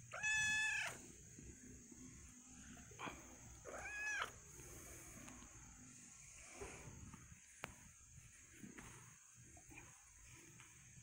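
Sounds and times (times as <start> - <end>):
kitten meowing: 0.1 - 1.0, 3.7 - 4.3.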